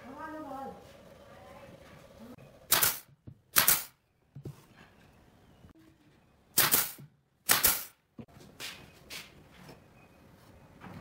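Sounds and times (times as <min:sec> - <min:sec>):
pneumatic nail gun firing: 0:02.7 - 0:04.0, 0:06.6 - 0:08.0.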